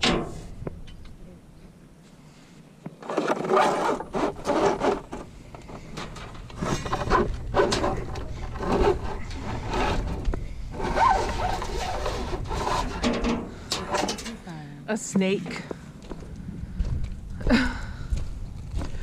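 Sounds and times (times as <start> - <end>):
debris scraping and knocking: 3.0 - 14.4
metal rod dragged out: 3.0 - 14.4.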